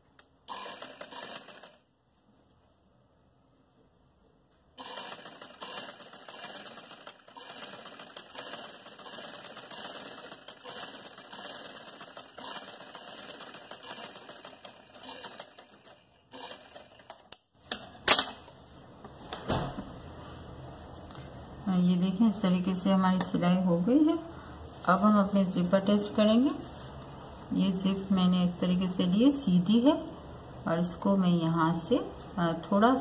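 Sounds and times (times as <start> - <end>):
sewing machine stitching: 0.5 - 1.8, 4.8 - 17.2.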